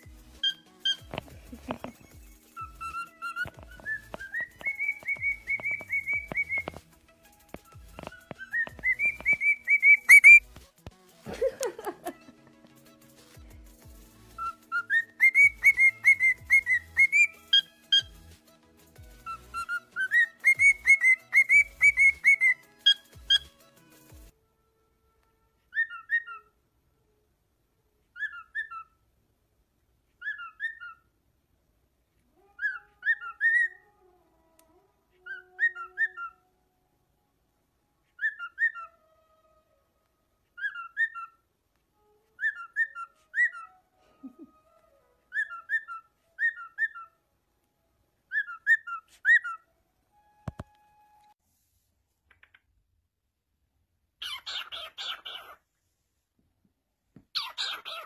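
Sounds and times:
cockatiel whistling: 0:00.0 - 0:06.8, 0:07.5 - 0:10.6, 0:14.3 - 0:18.2, 0:19.1 - 0:23.5, 0:25.7 - 0:26.5, 0:28.1 - 0:28.9, 0:30.2 - 0:31.0, 0:32.6 - 0:33.8, 0:35.2 - 0:36.4, 0:38.2 - 0:38.9, 0:40.6 - 0:41.4, 0:42.4 - 0:44.5, 0:45.3 - 0:47.1, 0:48.3 - 0:49.6, 0:54.2 - 0:55.6, 0:57.4 - 0:58.0.

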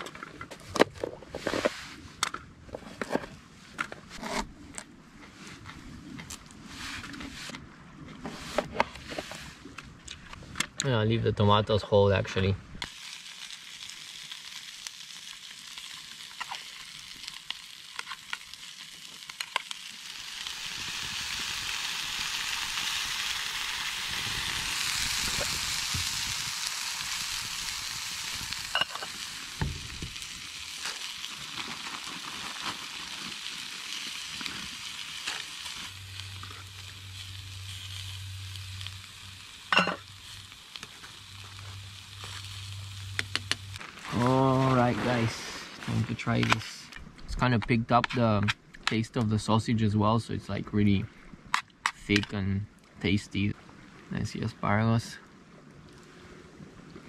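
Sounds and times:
food sizzling in frying pan: 0:12.8 - 0:45.6.

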